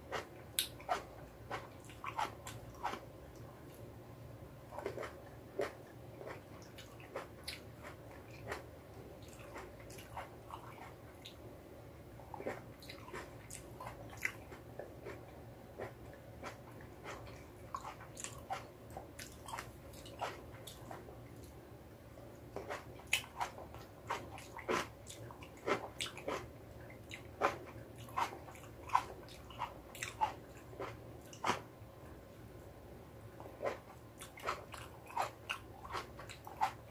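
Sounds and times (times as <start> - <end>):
cherry tomatoes chewed with pops: 0.0 - 3.9, 4.6 - 11.5, 12.2 - 21.6, 22.2 - 31.7, 33.4 - 36.9.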